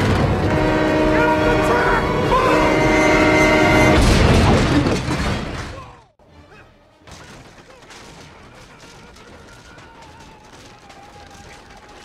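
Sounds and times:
crash and explosion: 0:03.8 - 0:05.8.

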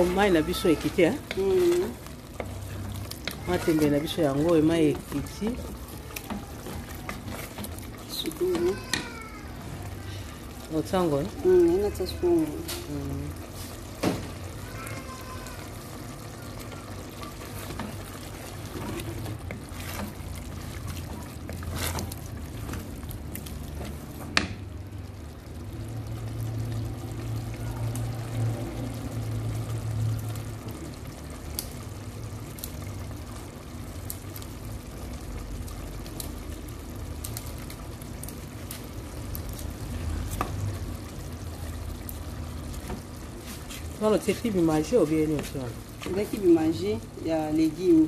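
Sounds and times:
pot bubbling and simmering: 0:00.0 - 0:48.0
wooden spoon stirring in a pot: 0:00.0 - 0:48.0.

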